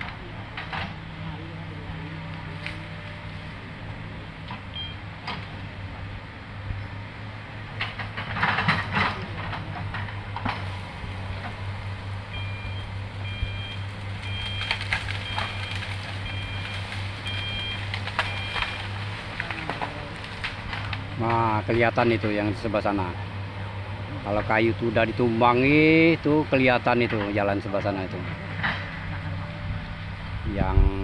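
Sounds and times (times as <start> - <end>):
excavator diesel engine running: 0.0 - 31.0
brush crackling: 0.9 - 4.7, 9.2 - 26.6
travel alarm beeping: 4.7 - 5.0, 12.3 - 18.9.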